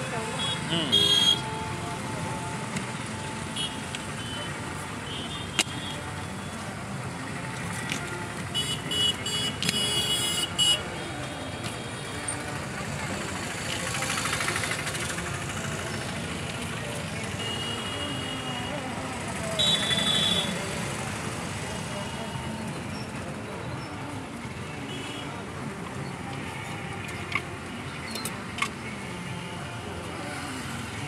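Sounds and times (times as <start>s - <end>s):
din of vehicles and people: 0.0s - 31.0s
vehicle horn tooting: 0.3s - 1.7s, 8.6s - 10.8s, 17.4s - 18.5s, 19.6s - 20.6s.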